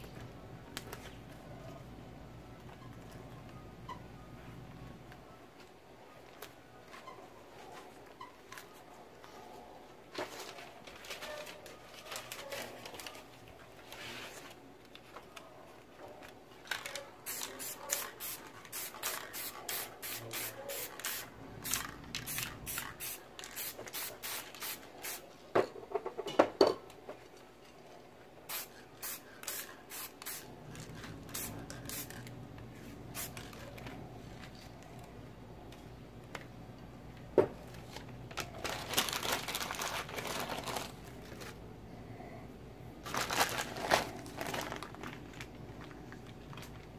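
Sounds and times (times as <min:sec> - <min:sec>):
paper rustling: 0:10.1 - 0:15.5, 0:37.7 - 0:41.6
spray can hissing bursts: 0:17.3 - 0:25.2, 0:28.5 - 0:30.5, 0:31.3 - 0:32.2.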